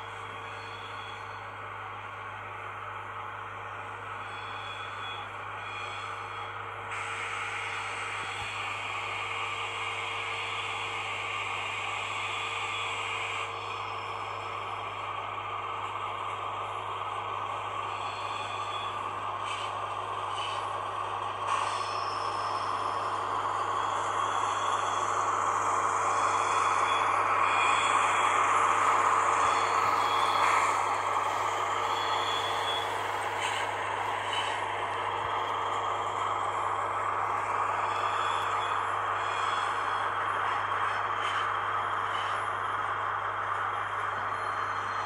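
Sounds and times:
model train diesel engine sound: 0:00.0 - 0:45.0.

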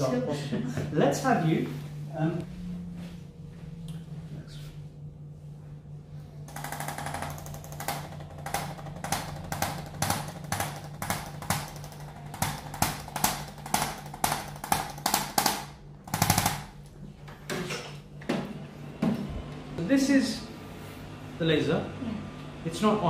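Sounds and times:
low steady hum: 0:00.0 - 0:23.0
rapid-fire clicks of adjusting instrument: 0:06.5 - 0:16.8.

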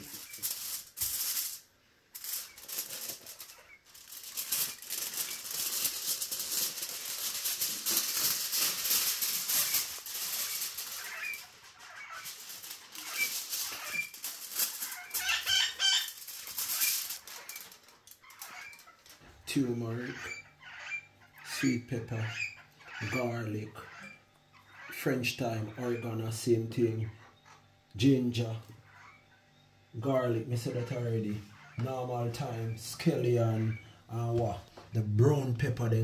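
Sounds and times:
aluminium foil crinkling: 0:00.0 - 0:19.3.

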